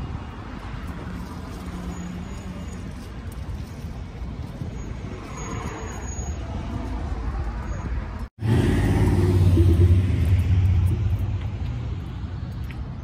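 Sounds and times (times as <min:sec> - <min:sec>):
traffic rumble: 0:00.0 - 0:13.0.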